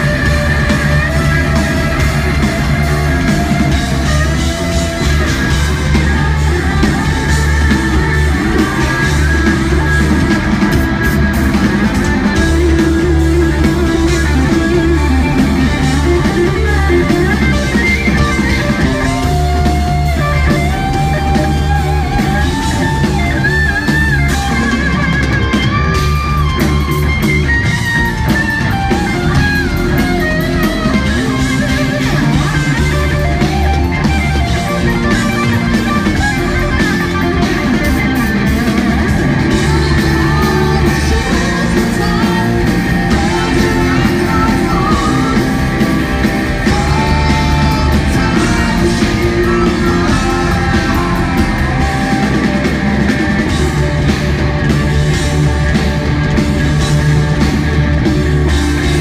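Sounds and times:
bass guitar: 0.0s - 59.0s
drum kit: 0.0s - 59.0s
electric guitar lead line: 0.0s - 59.0s.

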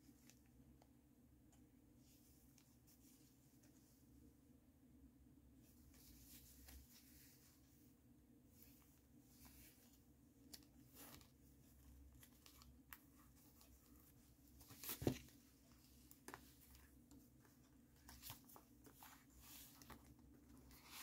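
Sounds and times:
paper pages rustling and crinkling: 8.6s - 21.0s.

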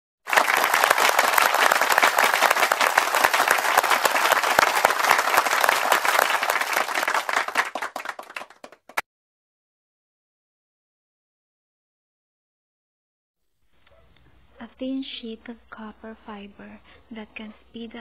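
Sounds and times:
crowd applauding: 0.0s - 9.0s
lone clap: 0.2s - 9.0s.

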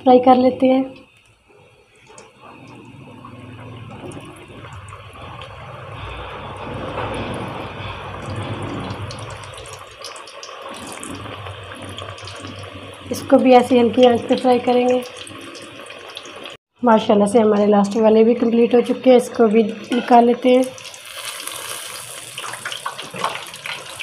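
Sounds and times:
food sizzling in oil: 6.7s - 16.6s, 18.8s - 24.0s.

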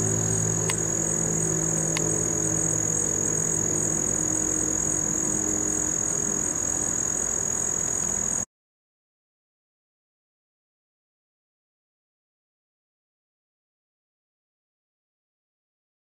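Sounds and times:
low steady hum: 0.0s - 8.4s
high-pitched insect chorus: 0.0s - 8.5s.

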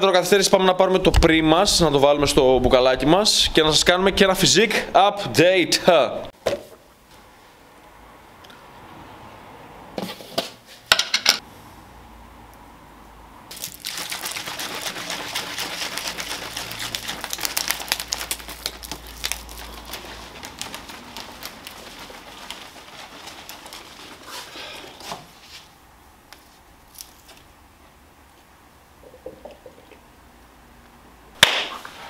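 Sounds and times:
shaker bottle sloshing rattle: 13.5s - 25.0s.

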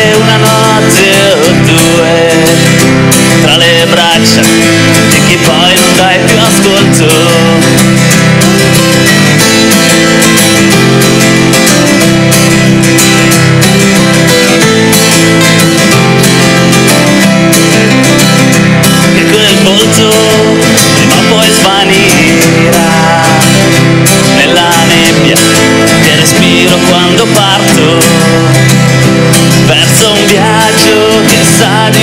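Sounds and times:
man singing: 0.0s - 9.0s, 18.9s - 32.0s
acoustic guitars strumming: 0.0s - 32.0s.

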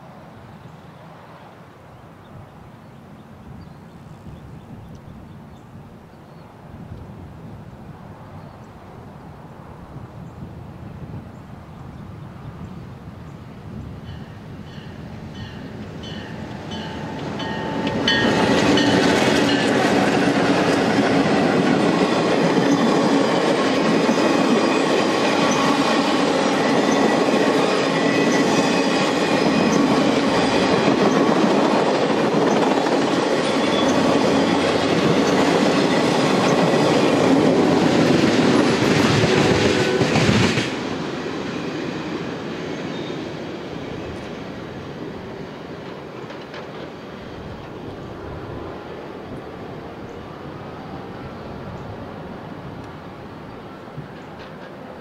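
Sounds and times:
diesel locomotives passing: 8.1s - 55.0s
train wheel clatter: 14.0s - 41.5s, 45.6s - 48.0s, 54.0s - 55.0s.

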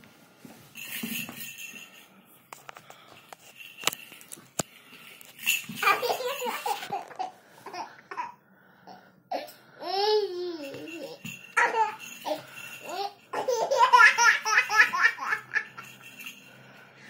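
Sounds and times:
toddler babbling and laughing: 5.8s - 8.3s, 9.3s - 15.6s.

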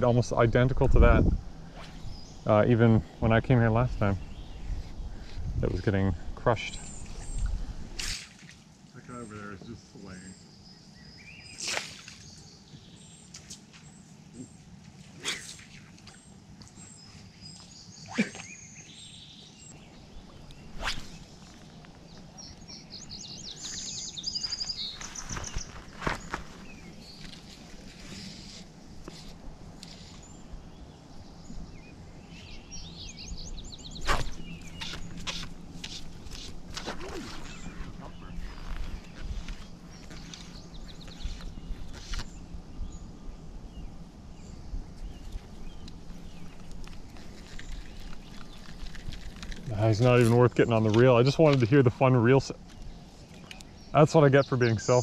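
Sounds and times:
low wind rumble: 0.0s - 8.8s, 18.6s - 55.0s
songbirds chirping: 0.0s - 55.0s
microphone handling noise: 24.4s - 28.0s
fly line stripped by hand: 34.0s - 37.8s.

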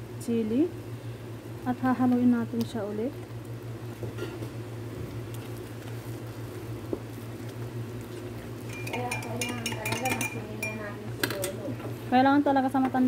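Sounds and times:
spoon stirring thick food: 5.3s - 10.9s
spoon clicks on pot: 8.7s - 11.6s.

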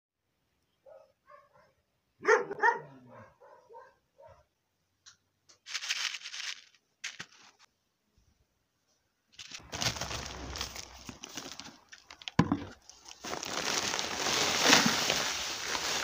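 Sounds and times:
plastic seed packet crinkling: 5.6s - 7.7s, 9.4s - 16.0s.

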